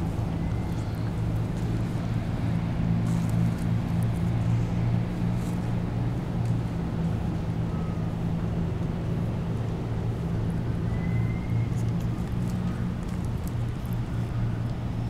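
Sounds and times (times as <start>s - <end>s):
faint short whistles: 10.8s - 11.8s.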